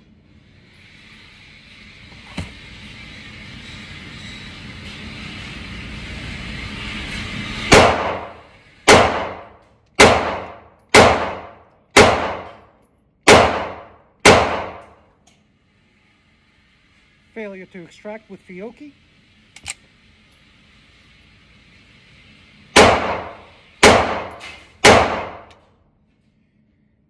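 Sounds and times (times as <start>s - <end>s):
pistol shots with echo: 7.7s - 8.3s, 8.9s - 12.6s, 13.3s - 14.8s, 22.8s - 25.5s.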